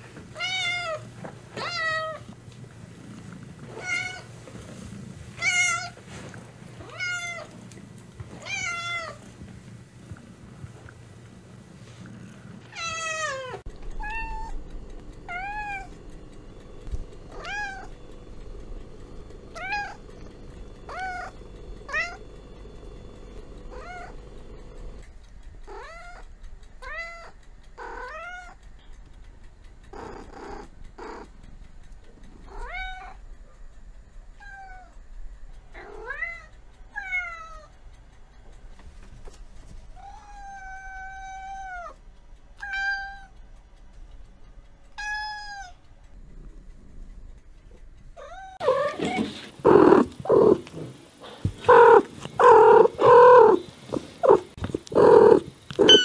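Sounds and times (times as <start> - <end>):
cats meowing: 0.3 - 2.3, 3.6 - 4.4, 5.4 - 6.1, 6.8 - 7.6, 8.3 - 9.3, 12.7 - 14.6, 17.3 - 18.0, 19.6 - 20.2, 20.9 - 22.3, 23.7 - 24.2, 25.7 - 28.6, 40.0 - 42.0, 42.6 - 43.4, 45.0 - 45.8, 48.2 - 50.7, 51.5 - 56.0.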